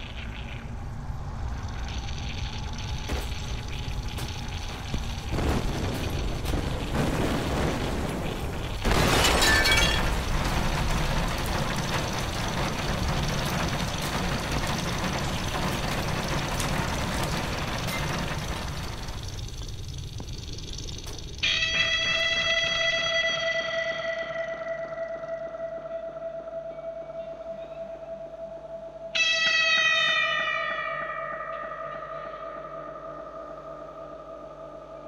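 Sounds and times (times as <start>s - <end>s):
low rumble: 0.0s - 23.2s
fire rushing: 0.2s - 21.6s
loud explosion burst: 3.2s - 19.5s.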